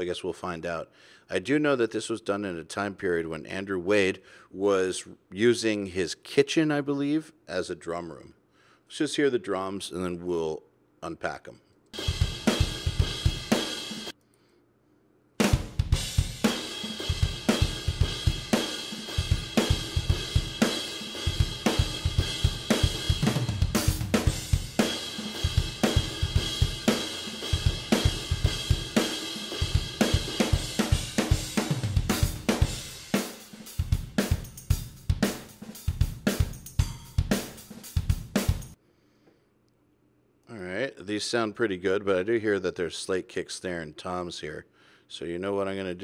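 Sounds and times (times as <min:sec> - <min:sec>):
drum kit playing steady beat: 0:12.0 - 0:14.2, 0:15.4 - 0:38.8.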